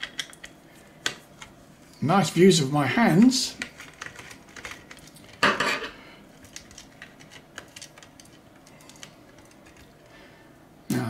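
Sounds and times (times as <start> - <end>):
small plastic parts clattering: 3.6 - 10.0.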